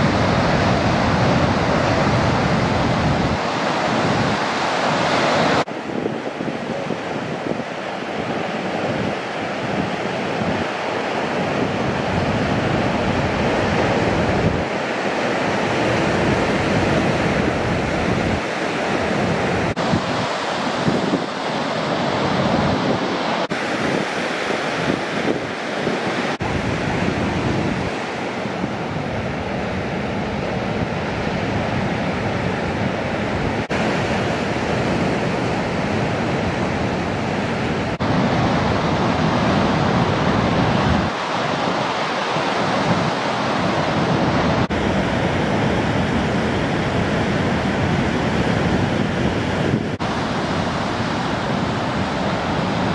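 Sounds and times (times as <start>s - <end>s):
waves breaking: 0.0s - 52.9s
wind buffeting microphone: 0.0s - 52.9s.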